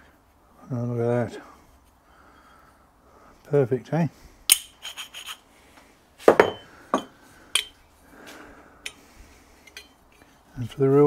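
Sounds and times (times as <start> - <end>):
metal parts clinking: 4.5 - 5.4, 9.6 - 10.2
ringing metal knock: 6.3 - 7.7.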